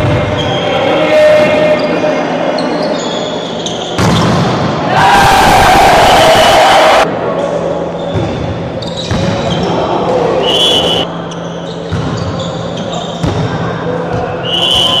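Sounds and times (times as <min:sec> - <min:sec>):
short referee whistle blast: 0:10.4 - 0:11.1, 0:14.5 - 0:15.0.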